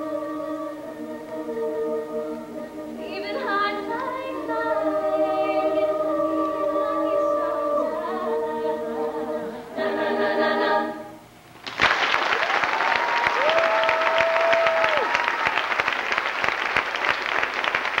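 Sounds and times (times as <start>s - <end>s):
women's choir singing chord: 0.0s - 11.2s
audience applause and cheering: 11.6s - 18.0s.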